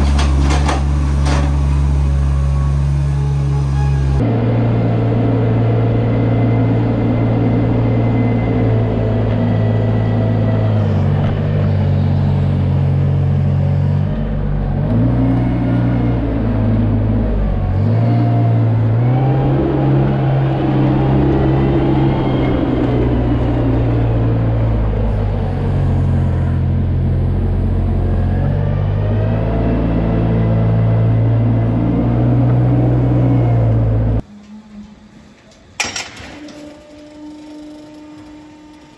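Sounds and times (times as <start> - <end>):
loader engine running under load: 0.0 - 38.9.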